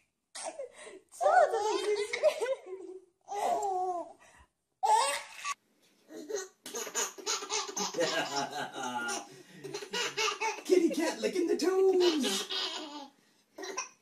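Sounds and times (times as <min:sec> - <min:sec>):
baby laughing: 0:04.8 - 0:10.9, 0:11.8 - 0:14.0.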